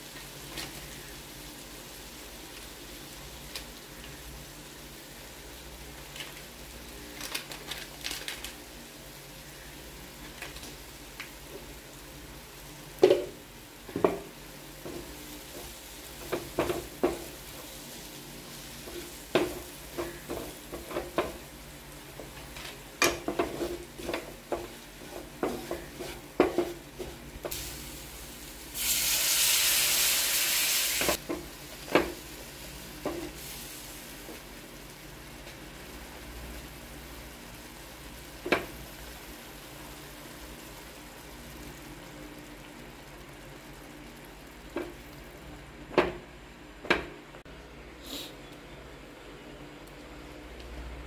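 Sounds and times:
spatula scraping a frying pan: 22.7 - 27.6
loud sizzling hiss: 23.6 - 45.6
spatula knocking against pan: 25.4 - 26.8.

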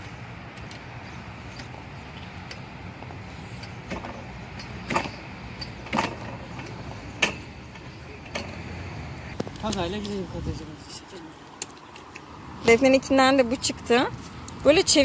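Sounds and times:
seesaw mechanical clunk: 2.4 - 8.8.

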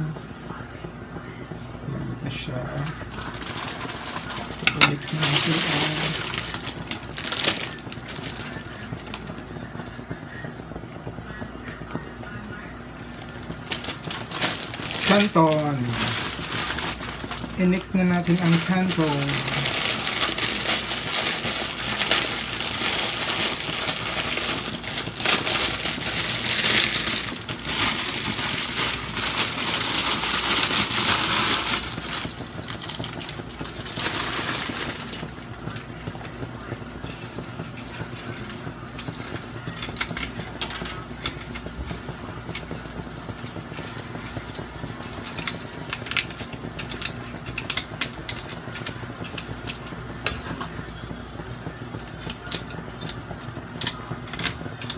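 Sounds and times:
plastic packaging crinkling: 2.8 - 9.3, 13.2 - 49.8.

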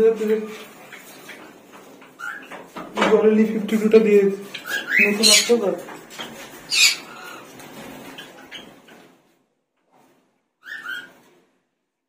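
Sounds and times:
lovebird squawk: 4.6 - 5.6, 6.7 - 7.4.

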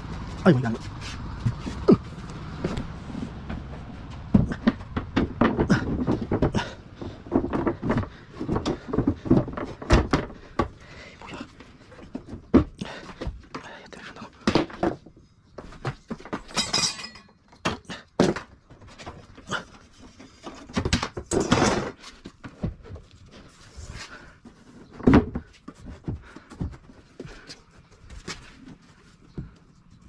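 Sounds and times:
knocks and thuds: 1.4 - 10.9.

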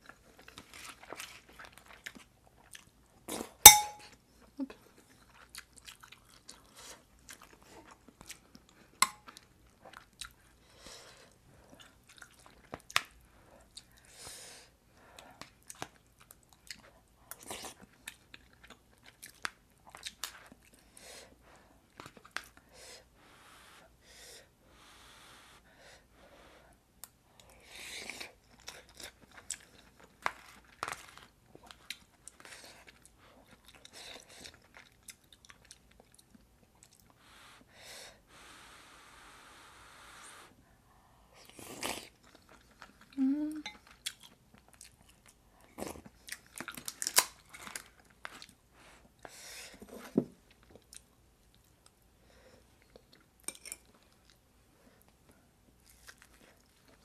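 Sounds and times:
person chewing food: 0.0 - 3.9, 5.0 - 10.6, 11.2 - 14.1, 15.2 - 20.9, 27.0 - 37.2, 41.4 - 57.0
metal spoon clinking ceramic pot: 3.7 - 4.0.

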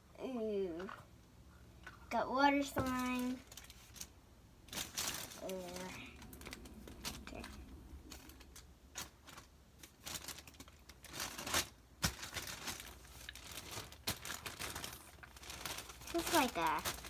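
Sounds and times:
foil and plastic packaging crinkling: 2.6 - 17.0.

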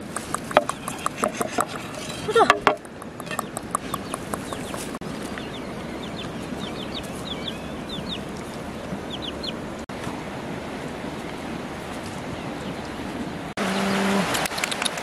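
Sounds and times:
steady background noise: 0.0 - 13.5
chicks peeping: 2.9 - 9.8.

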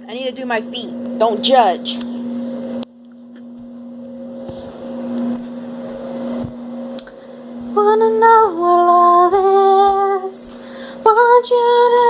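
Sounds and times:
low mechanical hum: 0.0 - 12.0
rustling noise: 4.4 - 6.6.

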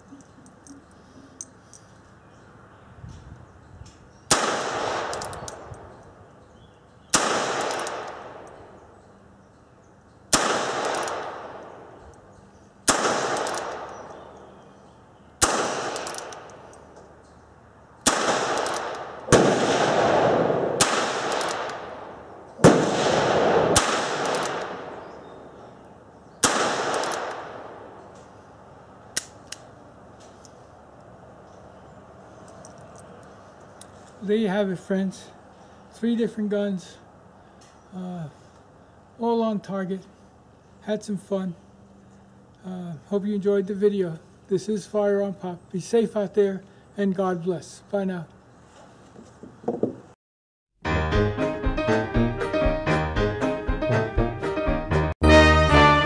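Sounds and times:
handgun shots echoing: 4.3 - 5.9, 7.1 - 8.6, 10.3 - 12.0, 12.8 - 14.3, 15.4 - 16.9, 18.0 - 25.1, 26.4 - 28.3.

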